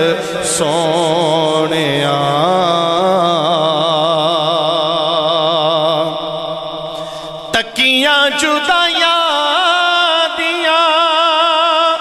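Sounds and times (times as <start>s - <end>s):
man singing a long note: 0.0s - 12.0s.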